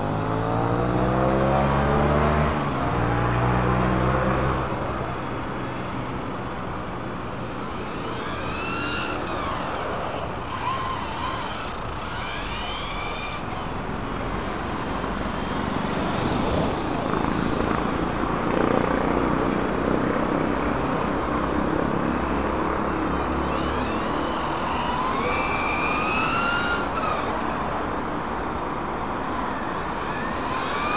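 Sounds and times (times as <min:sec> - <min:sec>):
steady rushing noise: 0:04.4 - 0:30.9
electric motor whining: 0:06.5 - 0:18.9, 0:22.1 - 0:30.9.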